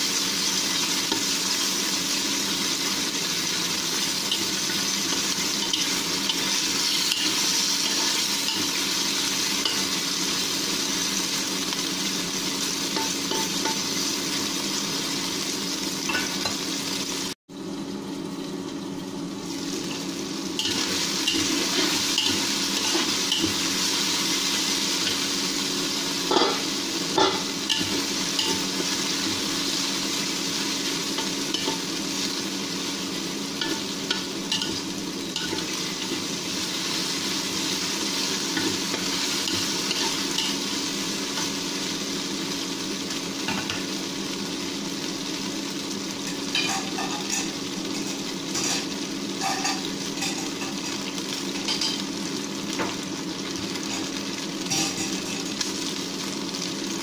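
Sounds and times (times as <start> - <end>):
meat sizzling in hot oil: 0.0 - 57.0
metal spatula scraping a wok: 48.5 - 50.8.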